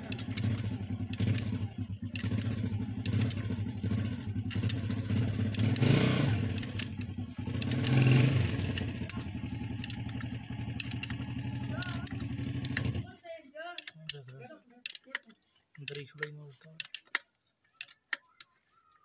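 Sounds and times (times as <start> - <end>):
motorcycle engine running: 0.0 - 14.9
spanner clicking on bolt: 0.0 - 18.6.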